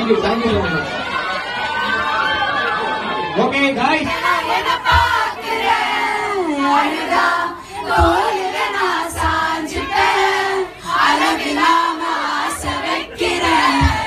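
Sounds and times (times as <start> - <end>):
crowd noise: 0.0 - 14.0
crowd singing together: 3.9 - 14.0.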